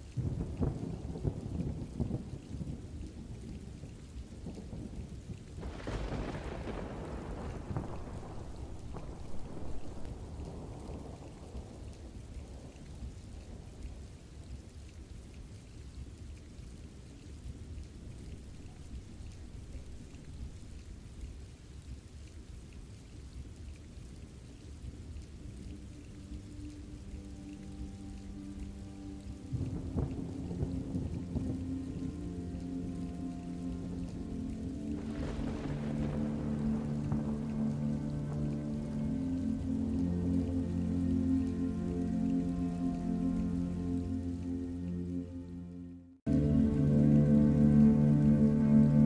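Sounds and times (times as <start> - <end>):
steady rain: 0.0 - 49.0
thunder rumbling: 0.1 - 13.1, 18.0 - 21.2, 25.4 - 44.7
soft sustained musical tones: 18.1 - 20.9, 25.1 - 49.0
low rumble: 25.6 - 49.0.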